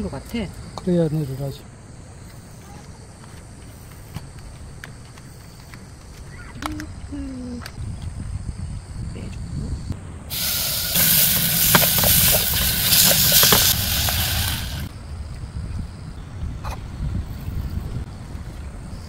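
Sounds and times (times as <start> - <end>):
loud steady hiss: 10.3 - 15.0.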